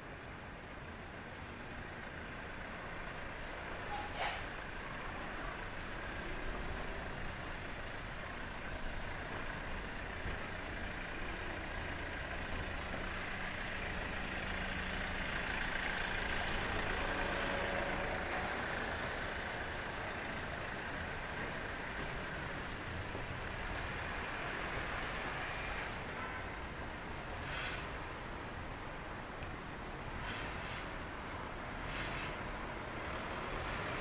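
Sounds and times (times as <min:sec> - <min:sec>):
car engine running: 0:01.1 - 0:26.0.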